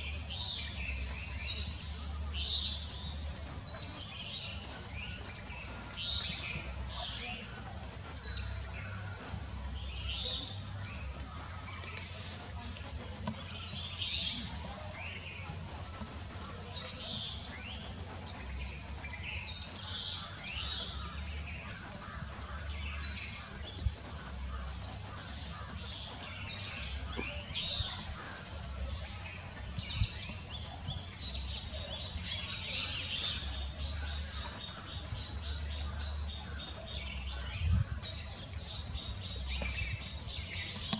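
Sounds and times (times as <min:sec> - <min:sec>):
birds chirping: 0:00.0 - 0:40.9.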